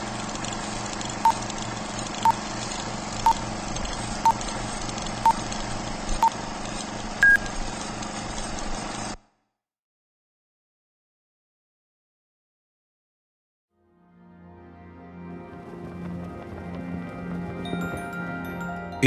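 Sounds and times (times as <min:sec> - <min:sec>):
film projector hiss and hum: 0:00.0 - 0:09.4
short beeps: 0:07.2 - 0:07.5.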